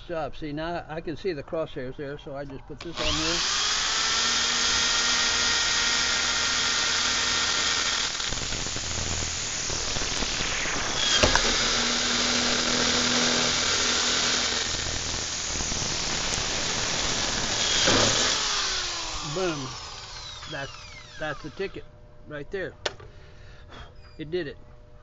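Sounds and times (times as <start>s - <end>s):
drill bit grinding metal: 2.8s - 21.8s
electric drill whining: 2.8s - 21.8s.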